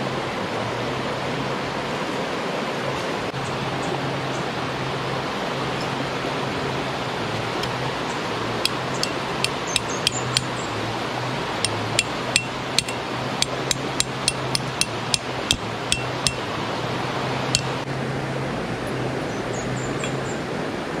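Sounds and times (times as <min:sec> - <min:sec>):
stream water rushing: 0:00.0 - 0:18.6
hammer tapping metal tent peg: 0:08.7 - 0:10.5, 0:11.6 - 0:16.5, 0:17.6 - 0:17.8.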